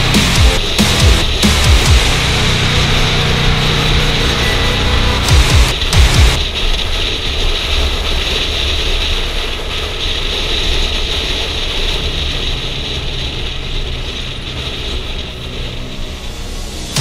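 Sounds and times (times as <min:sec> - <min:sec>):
motorcycle engine cruising: 0:00.0 - 0:06.4.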